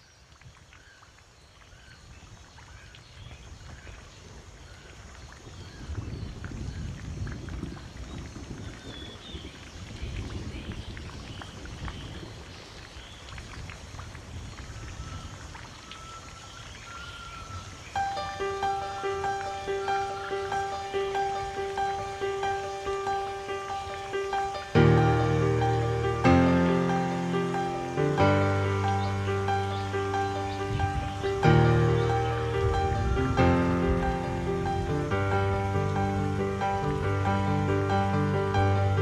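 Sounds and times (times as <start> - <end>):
birds chirping: 14.8 - 39.0.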